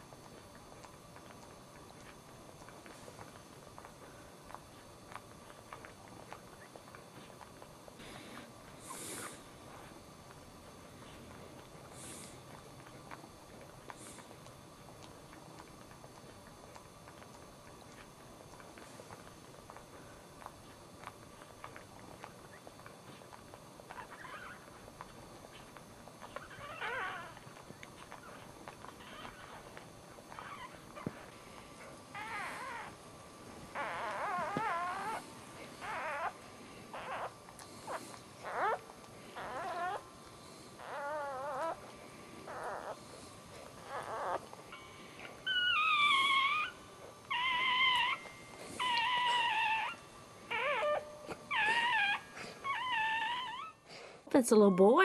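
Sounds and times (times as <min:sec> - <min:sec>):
wet licking clicks: 0:00.0 - 0:07.9, 0:11.3 - 0:36.4
puppy crying squeals: 0:23.9 - 0:24.8, 0:26.3 - 0:27.6, 0:29.0 - 0:31.2, 0:32.1 - 0:32.9, 0:33.7 - 0:35.2, 0:35.8 - 0:37.3, 0:37.9 - 0:38.8, 0:39.4 - 0:40.0, 0:40.8 - 0:41.9, 0:42.5 - 0:43.0, 0:43.8 - 0:53.8.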